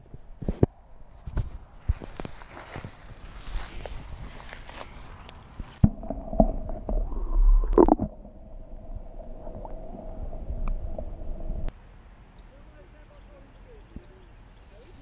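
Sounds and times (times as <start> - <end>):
camera plunging into water: 5.8 - 9.9
water gurgle: 5.8 - 11.7.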